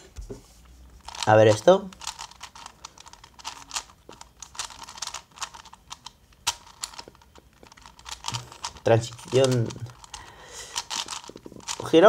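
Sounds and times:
puzzle cube clicking: 1.0 - 11.9.

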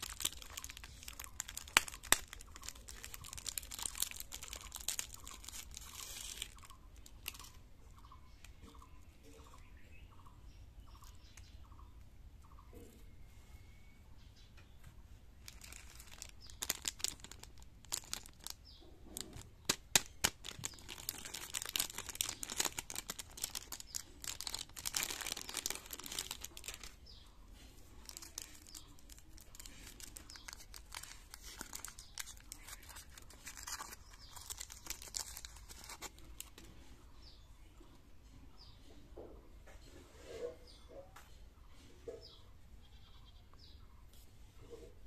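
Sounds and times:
foil wrapper crinkling: 0.0 - 7.6, 15.4 - 36.7.

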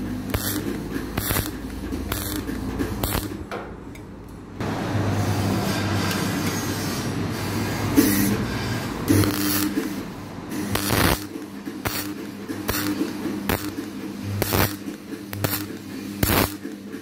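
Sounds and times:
crackling welding bursts: 0.0 - 3.5, 9.0 - 16.8.

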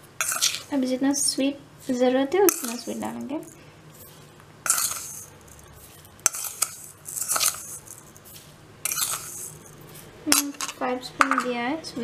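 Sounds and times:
sugar pouring into metal jar: 0.2 - 0.7, 2.5 - 3.6, 4.6 - 10.8.

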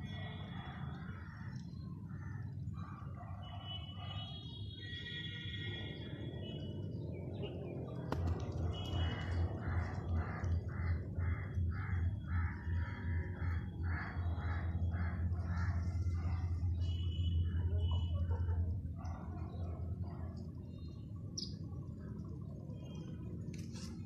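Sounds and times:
high chirping birdsong: 20.7 - 22.0.

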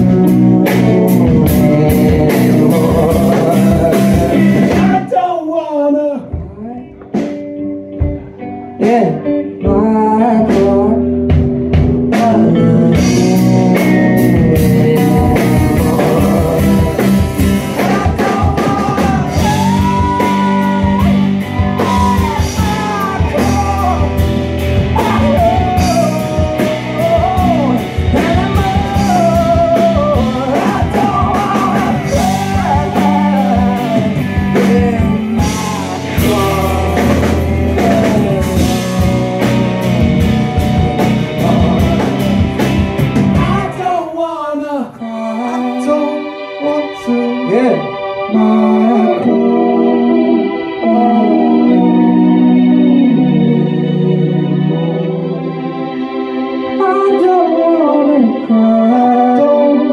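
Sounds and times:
electric guitars: 0.0 - 5.2, 6.2 - 44.0, 45.0 - 59.9
drum kit: 0.0 - 5.4, 6.1 - 44.1
lead vocal singing: 0.0 - 7.1, 8.7 - 59.9
bass guitar: 0.0 - 44.2, 45.1 - 59.9.

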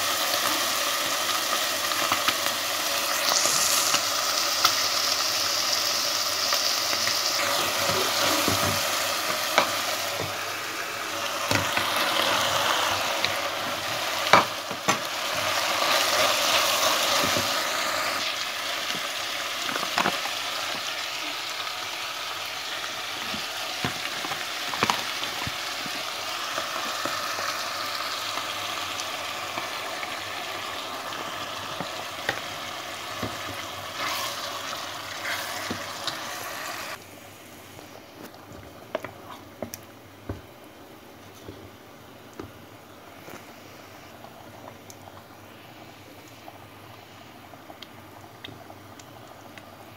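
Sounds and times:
meat sizzling in a pot: 0.0 - 39.0.

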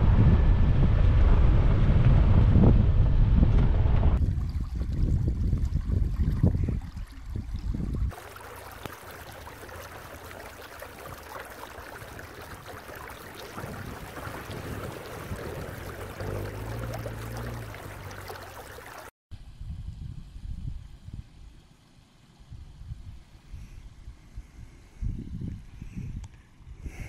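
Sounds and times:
wind rumbling on microphone: 0.0 - 27.0
stream trickling over stones: 4.2 - 19.1
car engine approaching: 11.6 - 19.1.

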